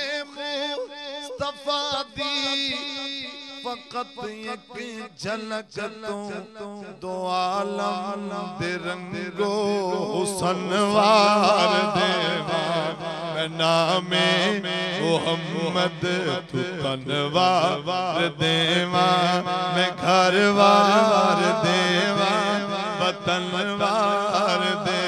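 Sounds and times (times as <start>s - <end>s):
man singing devotional song: 0.0s - 25.0s.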